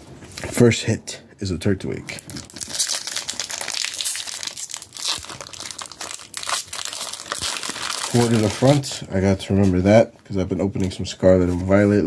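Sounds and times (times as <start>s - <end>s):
foil wrapper crinkling: 2.2s - 9.0s.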